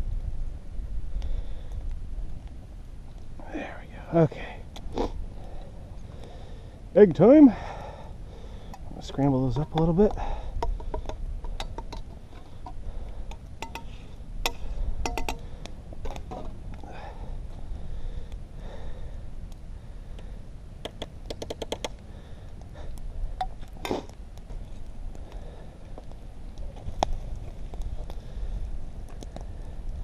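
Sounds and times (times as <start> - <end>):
low rumble: 0.0 - 7.0.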